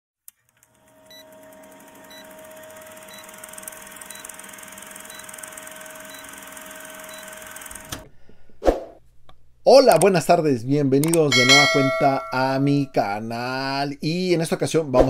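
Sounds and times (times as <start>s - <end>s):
film projector whirring clatter: 0.3s - 8.1s.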